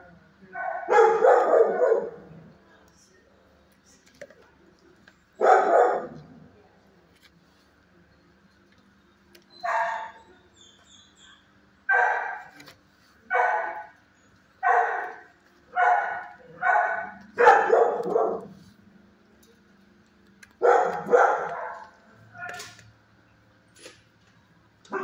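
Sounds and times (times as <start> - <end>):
dog barking: 0.6 - 2.5, 5.4 - 6.3, 9.6 - 10.3, 11.9 - 12.6, 13.3 - 14.0, 14.6 - 18.7, 20.6 - 22.7.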